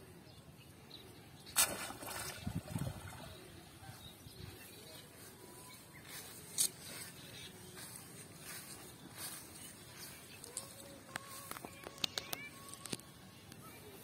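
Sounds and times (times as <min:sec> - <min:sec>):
net splashing out of water: 0:01.5 - 0:03.3.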